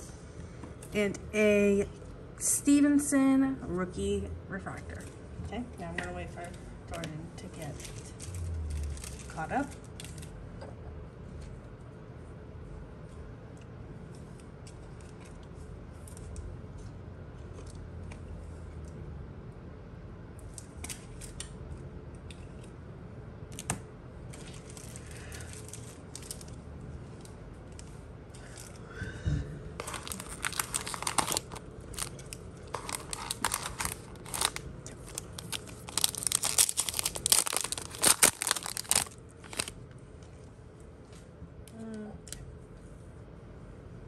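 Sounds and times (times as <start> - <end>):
foil wrapper crinkling and tearing: 7.7 - 10.3, 24.3 - 26.6, 29.8 - 39.8.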